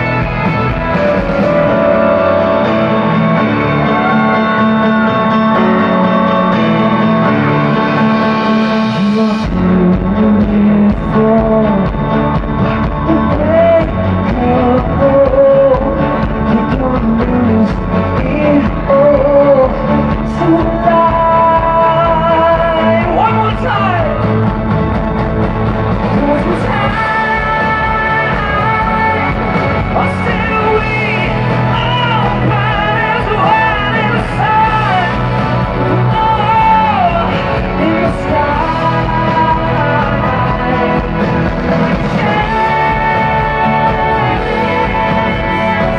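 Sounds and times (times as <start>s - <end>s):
amplified music accompaniment: 0.0s - 45.9s
man singing into a microphone: 8.7s - 24.5s, 26.1s - 45.9s.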